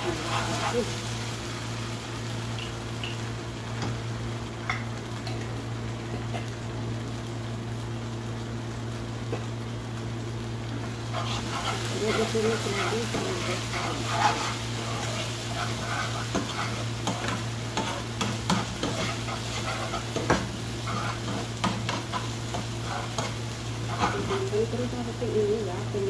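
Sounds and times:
spatula scraping pan: 0:00.0 - 0:01.1, 0:11.0 - 0:24.5
food sizzling in a frying pan: 0:00.0 - 0:26.0.

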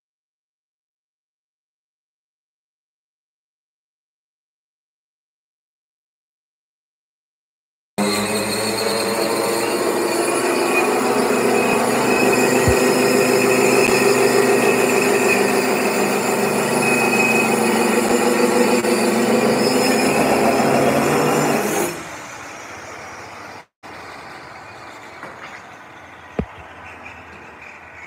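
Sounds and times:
electric tile saw whining: 0:08.0 - 0:23.7.

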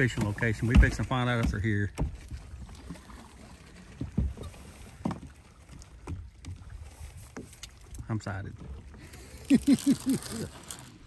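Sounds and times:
dull water slaps: 0:00.0 - 0:08.1
small waves lapping against boat hull: 0:00.0 - 0:11.0.

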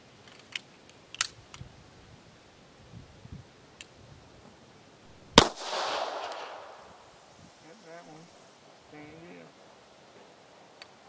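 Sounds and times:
pistol metallic clicks: 0:00.2 - 0:01.6, 0:05.4 - 0:06.8.

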